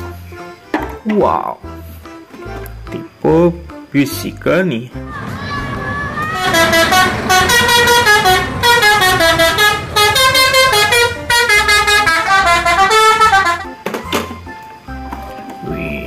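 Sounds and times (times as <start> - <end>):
musical air horn playing a tune: 6.3 - 13.8.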